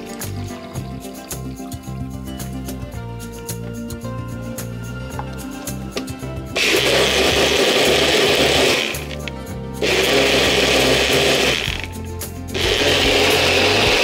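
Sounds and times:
blender motor pulsing: 6.6 - 14.0.

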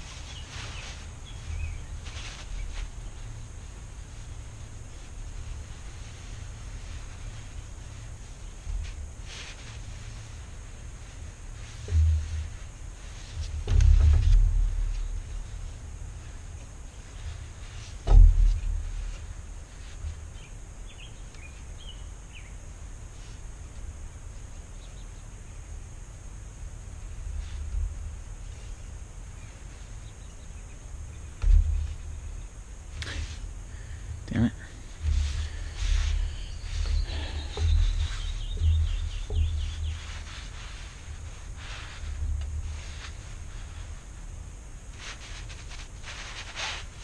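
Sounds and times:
cord wrapped around wood: 0.0 - 20.5, 31.3 - 47.0
dull low thump: 0.0 - 20.9, 31.0 - 44.6
steady low rumble: 0.0 - 47.0
bird chirps: 35.7 - 40.2.

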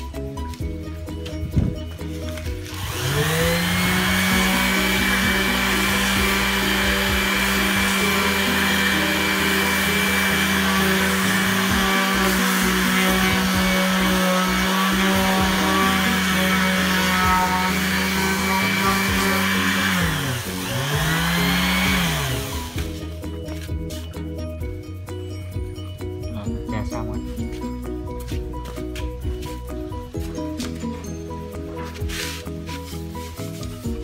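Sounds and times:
orbital sander running: 2.5 - 24.0.

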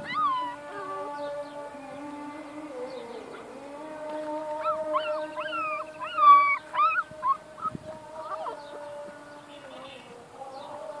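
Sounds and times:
puppy whining and crying: 4.7 - 7.4.

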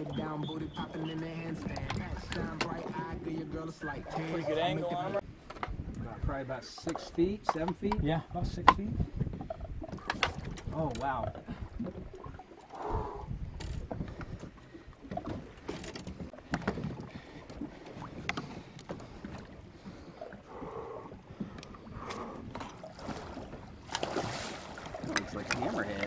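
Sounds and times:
water lapping against boat hull: 0.0 - 26.0
sharp clicks and knocks: 6.8 - 8.0.

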